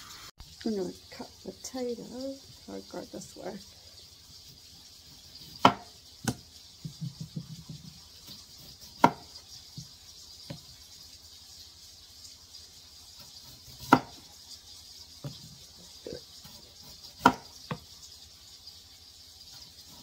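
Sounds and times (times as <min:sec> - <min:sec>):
knife chopping on cutting board: 0:05.5 - 0:09.9, 0:13.7 - 0:14.2, 0:17.2 - 0:17.8.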